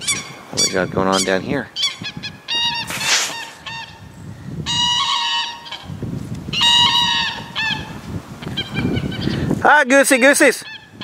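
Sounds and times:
geese honking: 0.0s - 9.5s, 10.2s - 11.0s.

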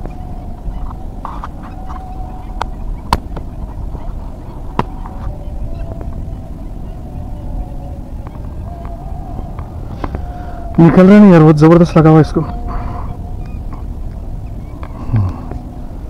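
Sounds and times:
faint droning tone: 0.0s - 16.0s
wind on microphone: 0.0s - 16.0s.

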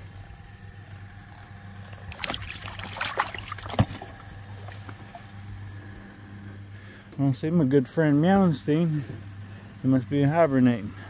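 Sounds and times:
fish splashing in water: 1.8s - 5.2s.

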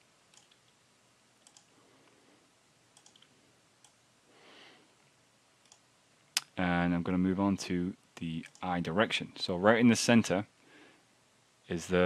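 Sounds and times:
computer mouse clicks: 0.3s - 0.8s, 1.4s - 1.7s, 3.0s - 4.0s, 5.6s - 5.8s.

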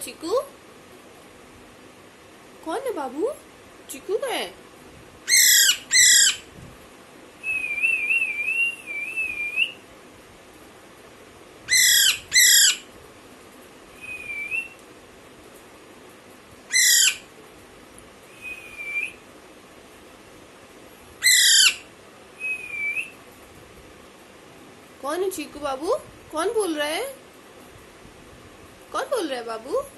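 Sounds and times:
parakeet whistling: 5.3s - 6.4s, 7.4s - 9.8s, 11.7s - 12.8s, 14.0s - 14.8s, 16.7s - 17.2s, 18.3s - 19.2s, 21.2s - 21.8s, 22.4s - 23.2s
parakeet screeching: 5.3s - 6.5s, 11.7s - 12.9s, 16.7s - 17.3s, 21.2s - 21.9s.

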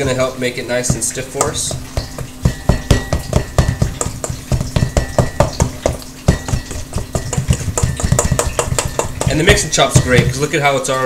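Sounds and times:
tool knocking and stirring in bowl: 0.0s - 10.8s.

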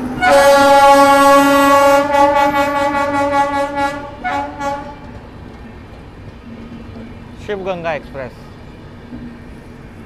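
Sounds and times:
short train horn toot: 0.2s - 5.0s
train horn blast: 0.2s - 5.1s.

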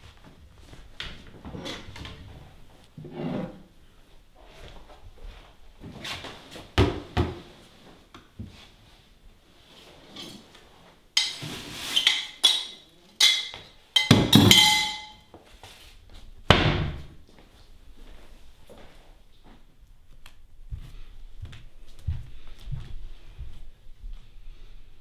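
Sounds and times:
ceramic plate clinking and scraping: 11.2s - 15.2s.

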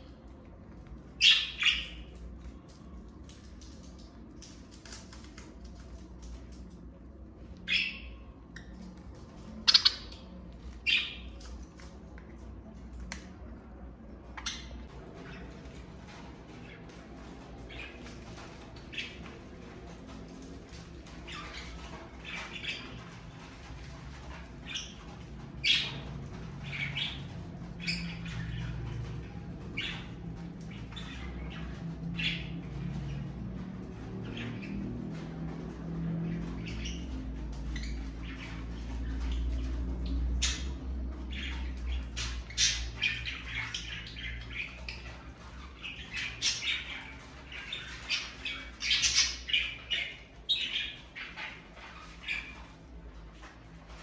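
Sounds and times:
budgerigars calling: 9.7s - 10.2s.

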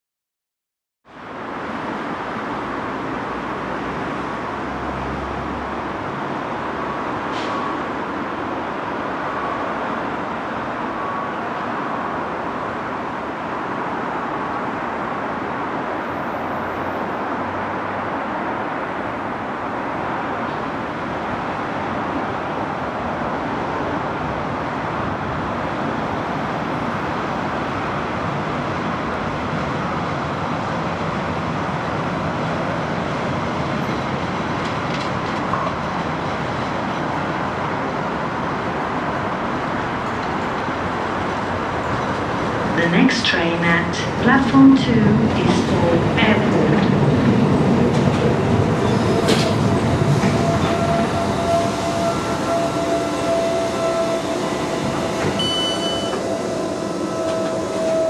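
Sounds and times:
electric train rumbling on track: 1.0s - 58.0s
road traffic: 1.1s - 58.0s.

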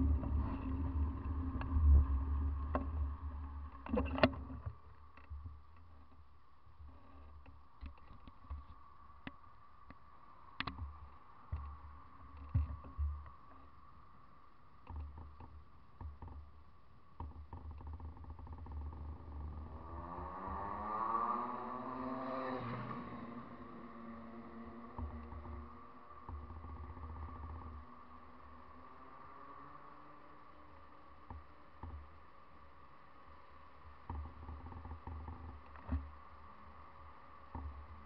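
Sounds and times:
faint steady hum: 0.0s - 38.0s.

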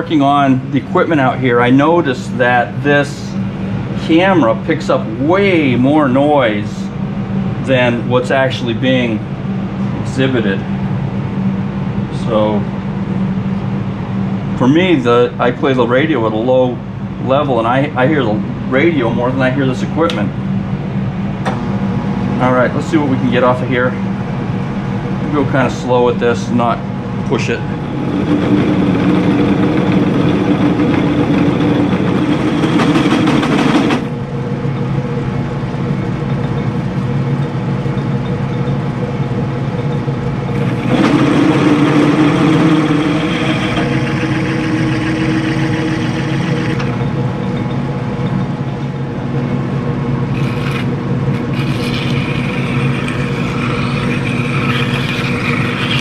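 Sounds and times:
metal lathe humming: 27.0s - 38.6s, 39.9s - 49.6s, 50.2s - 56.0s
drill cutting metal: 40.5s - 47.0s, 50.3s - 56.0s.

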